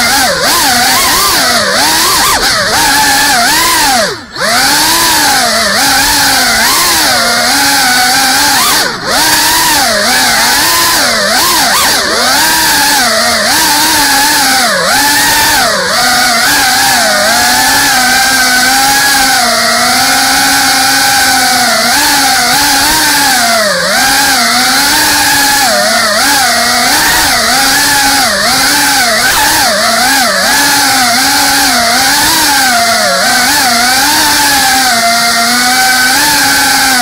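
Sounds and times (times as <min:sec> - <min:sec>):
drone propellers whining: 0:00.0 - 0:37.0.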